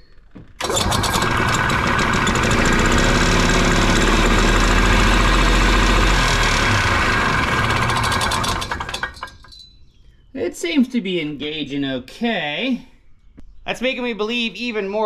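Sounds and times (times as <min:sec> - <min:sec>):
belt clutch spinning: 0:00.6 - 0:09.5
two-stroke engine running: 0:00.6 - 0:09.5.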